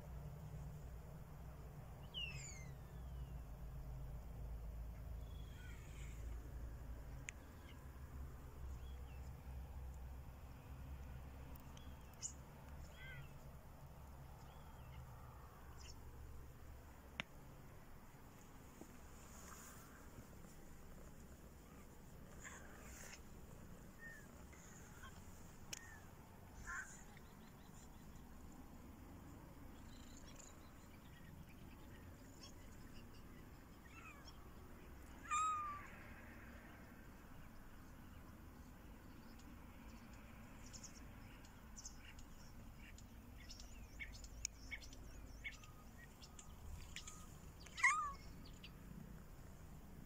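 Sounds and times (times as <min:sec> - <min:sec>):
kittens meowing: 0:33.8 - 0:34.3, 0:35.2 - 0:36.0, 0:47.0 - 0:48.4.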